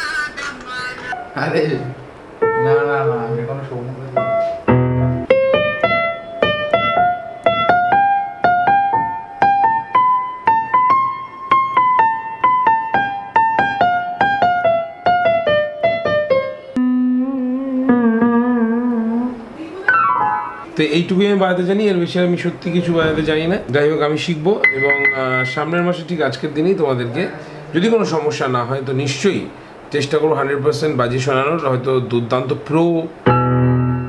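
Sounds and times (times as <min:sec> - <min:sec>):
electronic keyboard melody: 0:02.4 - 0:03.6, 0:04.2 - 0:20.7, 0:24.6 - 0:26.0, 0:33.3 - 0:34.0
keyboard held wavering notes: 0:16.8 - 0:20.7, 0:24.6 - 0:26.0.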